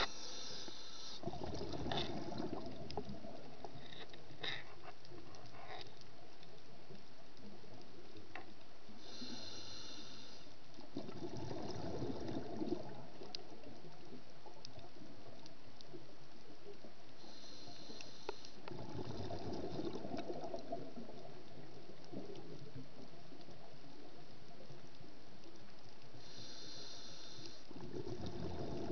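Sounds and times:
regulator hissing inhale: 0.0 - 1.3, 8.9 - 10.6, 17.2 - 18.7, 26.1 - 27.7
exhaled bubbles bursting: 1.2 - 3.4, 10.8 - 13.3, 18.7 - 21.4, 27.8 - 28.9
faint clicks: 1.8 - 9.2, 12.3 - 18.8, 19.8 - 28.9.

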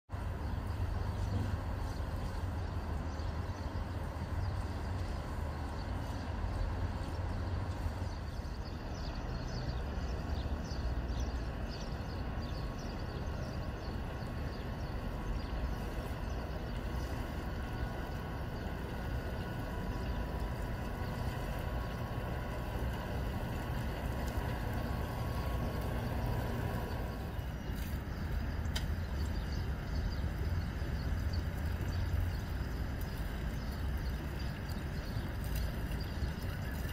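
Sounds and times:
boat motor running: 14.0 - 36.5.

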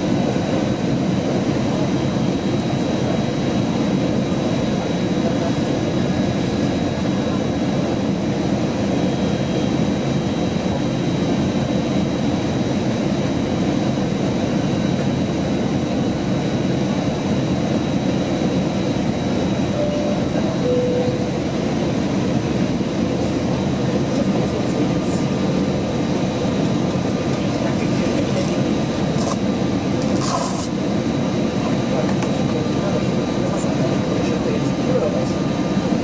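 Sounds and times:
airliner cabin noise: 0.0 - 36.0
faint high whine: 19.5 - 21.9.

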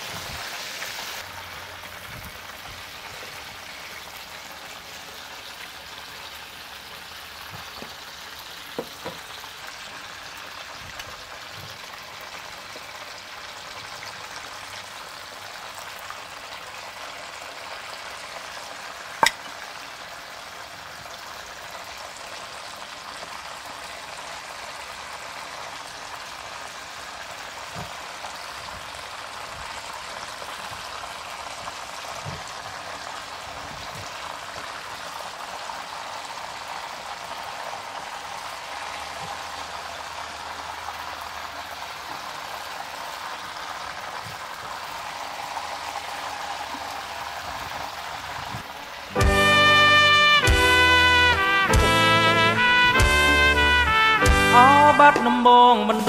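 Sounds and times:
food sizzling in hot oil: 0.0 - 49.9
metal tongs clicking on pan: 19.2 - 19.6.

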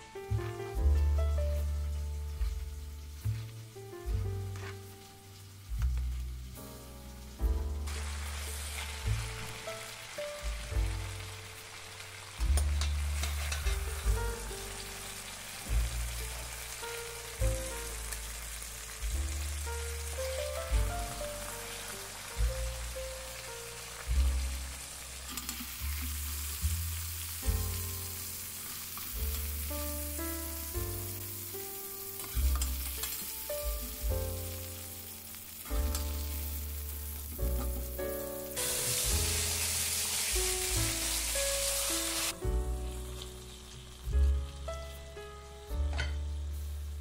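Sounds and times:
background music: 0.0 - 47.0
oil sizzling in a frying pan: 0.0 - 47.0.

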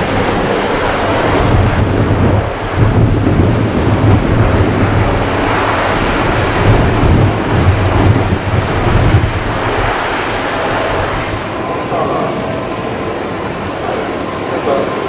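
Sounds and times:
jet engines in reverse thrust: 0.0 - 15.0.

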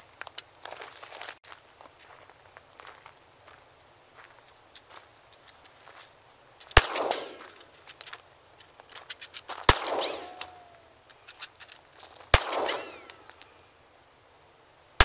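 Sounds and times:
pistol shots: 6.7 - 7.7, 9.6 - 10.9, 12.3 - 13.6
gunshot echo: 6.8 - 7.7, 9.7 - 10.9, 12.3 - 13.5.

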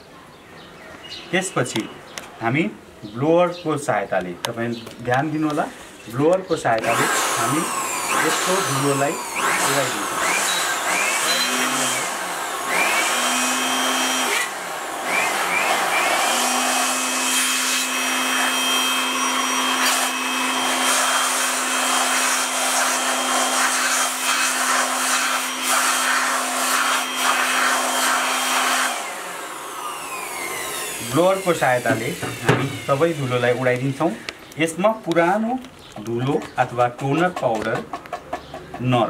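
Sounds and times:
electric air blower whining: 5.1 - 37.9.

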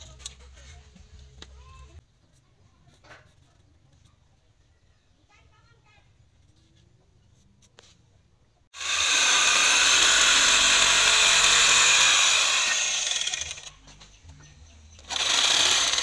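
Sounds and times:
electric jigsaw cutting wood: 8.8 - 13.7, 15.0 - 16.0.

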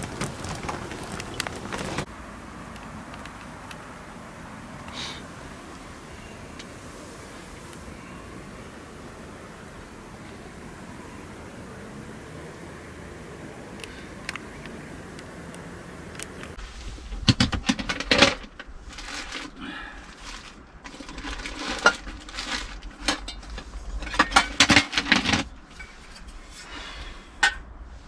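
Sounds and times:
rustling and scraping: 0.0 - 2.1, 16.2 - 28.0.

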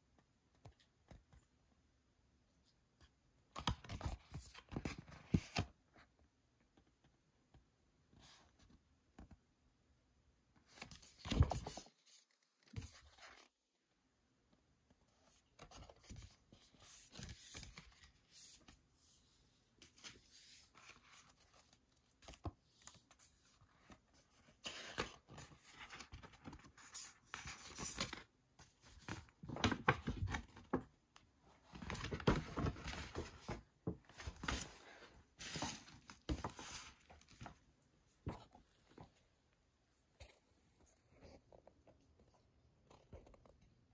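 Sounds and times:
paper rustling and crinkling: 19.8 - 30.9, 31.6 - 37.6.

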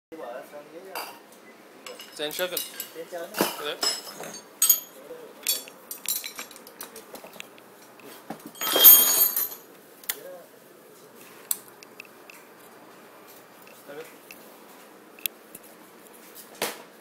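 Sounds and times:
metal hand tools clinking: 1.9 - 3.0, 3.8 - 7.0, 8.6 - 9.6.

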